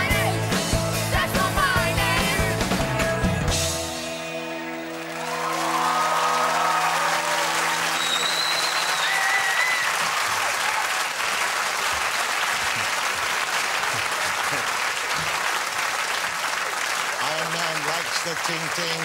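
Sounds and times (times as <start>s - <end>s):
audience applauding: 4.5s - 19.0s
high whoops: 5.2s - 11.2s.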